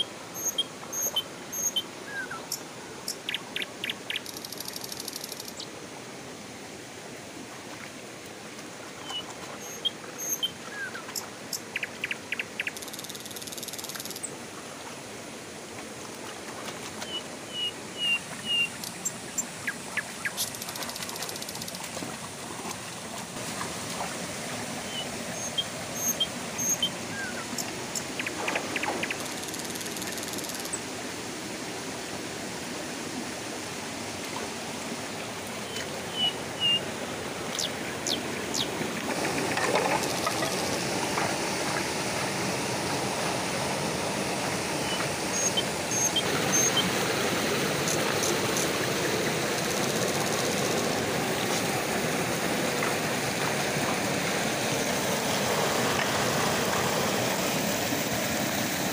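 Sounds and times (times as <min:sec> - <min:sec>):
water rushing over rocks: 0:14.2 - 0:58.9
feet wading through water: 0:15.7 - 0:18.9, 0:19.6 - 0:26.2, 0:34.2 - 0:58.9.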